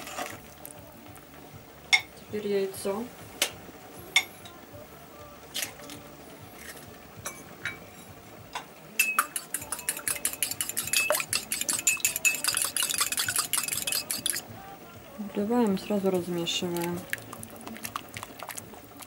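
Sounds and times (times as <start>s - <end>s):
fork clinking against cup: 8.6s - 14.4s.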